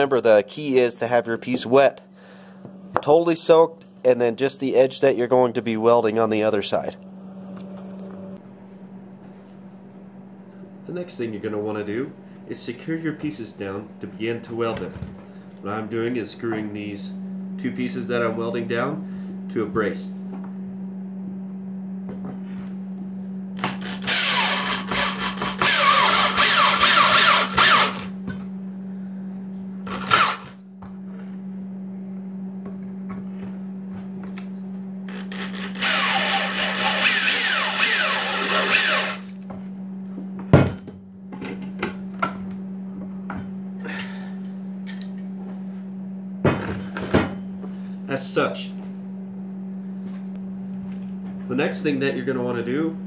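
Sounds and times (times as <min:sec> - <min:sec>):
electric drill driving screws: 0:23.6 - 0:28.1, 0:29.9 - 0:30.6, 0:35.1 - 0:39.3.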